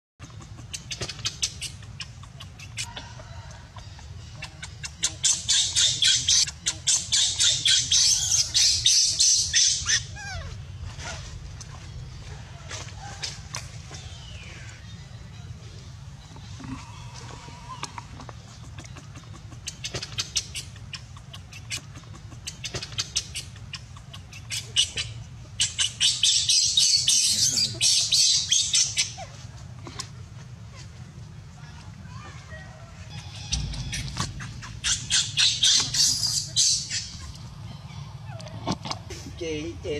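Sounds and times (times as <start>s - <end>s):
baby monkey screaming: 4.5s - 11.3s, 22.9s - 29.3s, 33.1s - 38.5s.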